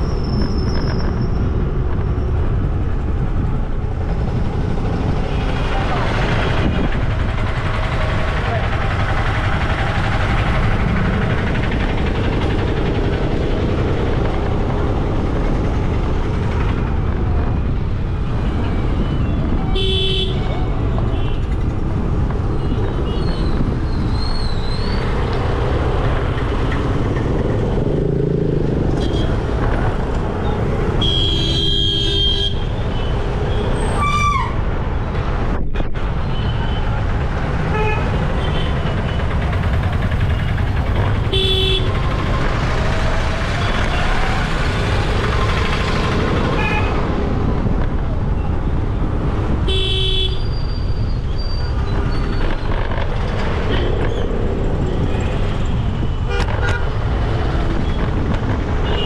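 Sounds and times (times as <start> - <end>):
wind and road noise: 0.0 - 59.0
vehicle horns honking: 19.7 - 21.5, 29.0 - 29.4, 31.0 - 33.1, 41.3 - 42.0, 49.6 - 50.5.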